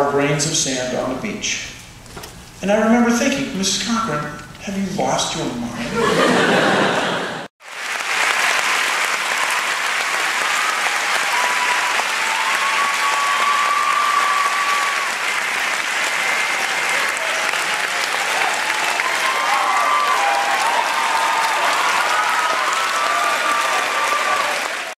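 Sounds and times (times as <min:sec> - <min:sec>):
audience applauding: 0:06.4 - 0:24.9
cheers: 0:07.8 - 0:24.9.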